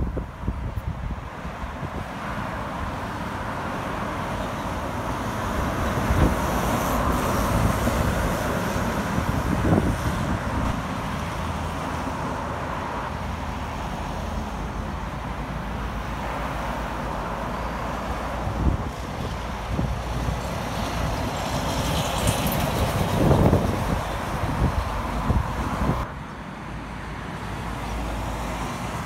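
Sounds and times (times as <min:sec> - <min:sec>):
cars going by: 0:00.0 - 0:29.0.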